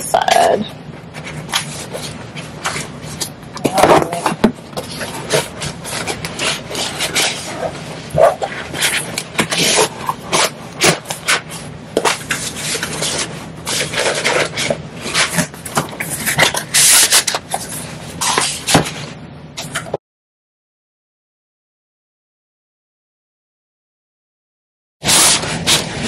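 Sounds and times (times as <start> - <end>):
fabric and board scraping: 3.8 - 15.5, 25.0 - 26.0.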